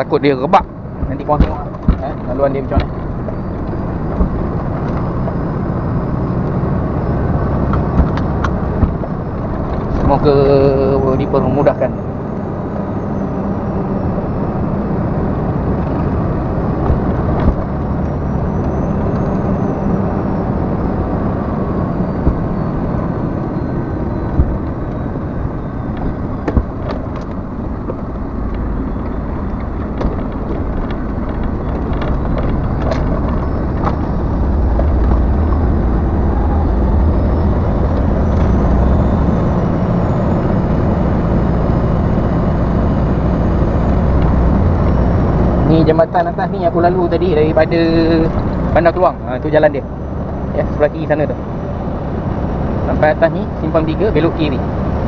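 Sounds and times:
diesel truck engine running: 0.0 - 55.0
tyres on rough dirt road: 0.0 - 55.0
knocks and rattles: 25.9 - 38.8.

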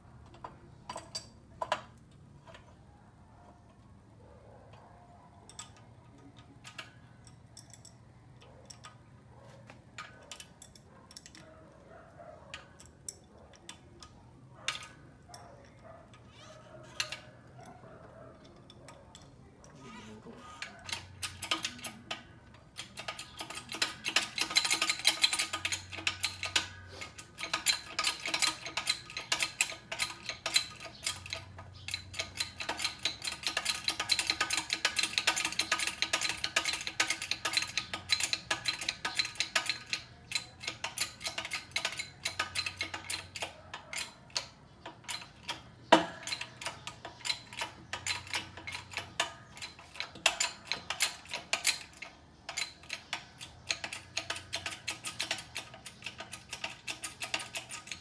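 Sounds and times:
hydraulic pump ticking rattle: 20.6 - 58.0.

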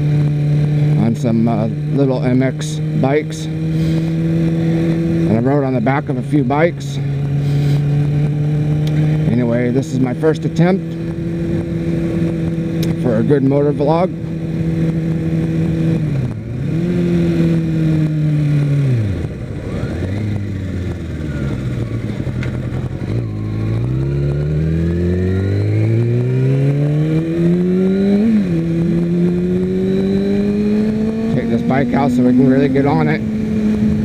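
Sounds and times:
motorcycle engine revving: 0.0 - 34.0.

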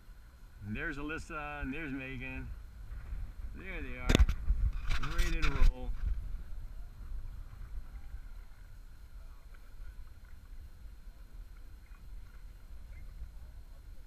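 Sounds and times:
wind rumble on microphone: 0.0 - 14.0
kayak paddle dipping: 5.9 - 14.0.

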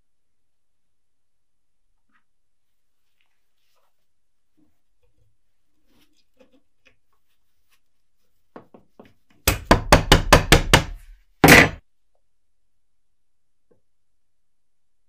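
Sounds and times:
sharp knocks: 9.5 - 11.8.

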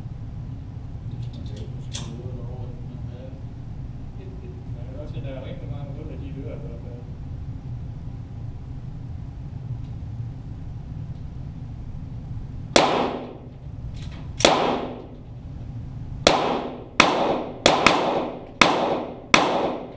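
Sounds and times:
low steady hum: 0.0 - 19.9
pistol shots: 12.8 - 13.5, 14.4 - 15.2, 16.2 - 19.9.

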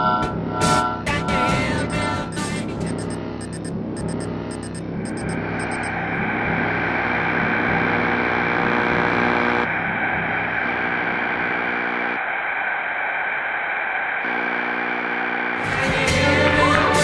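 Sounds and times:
layered hum: 1.3 - 15.8
electronic static hiss: 7.9 - 9.7.

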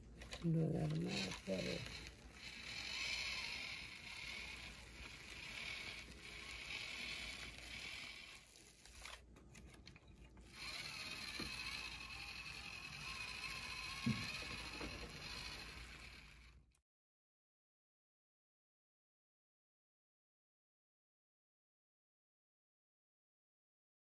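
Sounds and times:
toy electric motor whirring: 0.0 - 16.8.

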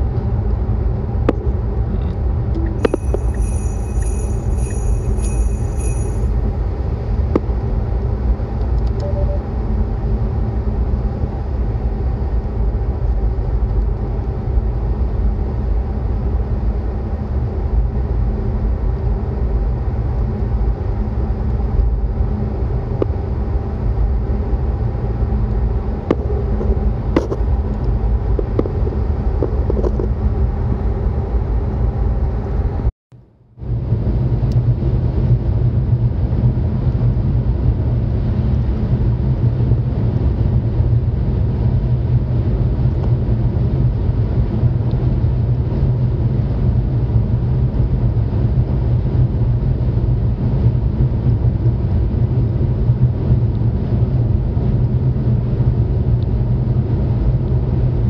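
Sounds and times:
road and tyre rumble in car: 0.0 - 32.9, 33.6 - 58.0
high pulsing electronic tone: 1.9 - 6.5, 9.0 - 9.7.

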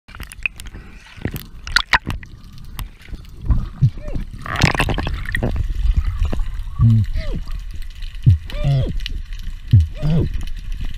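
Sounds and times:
underwater clicks and knocks: 0.1 - 7.1
bubbling: 0.1 - 10.9
underwater gurgling: 0.1 - 10.9.

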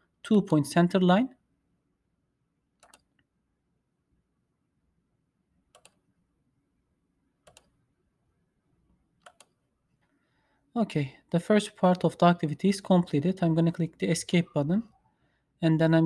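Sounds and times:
faint computer mouse clicks: 2.8 - 3.3, 5.7 - 6.0, 7.4 - 7.7, 9.2 - 9.6.

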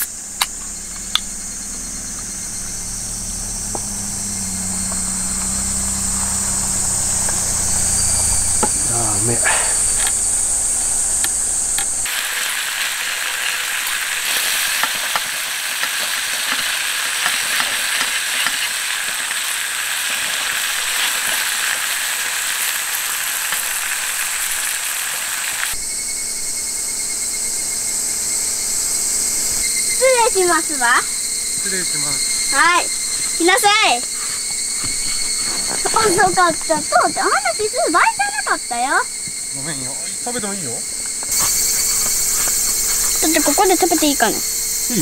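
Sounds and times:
insect chorus: 0.0 - 45.0
low rumble: 0.1 - 12.1
steaks sizzling on griddle: 3.3 - 25.8, 31.6 - 45.0.

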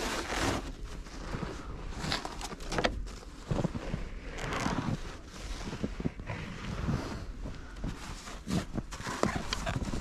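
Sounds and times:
footsteps crunching in snow: 0.0 - 10.0.

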